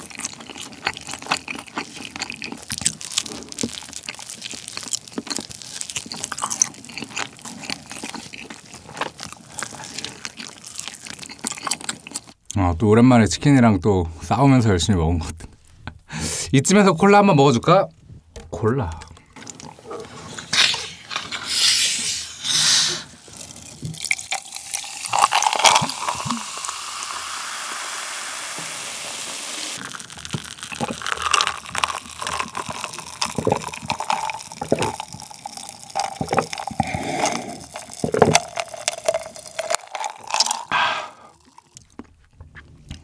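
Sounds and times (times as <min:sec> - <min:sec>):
sips and swallows: 0:19.0 - 0:27.2, 0:29.8 - 0:42.1
cola poured into glass of ice: 0:23.4 - 0:40.8.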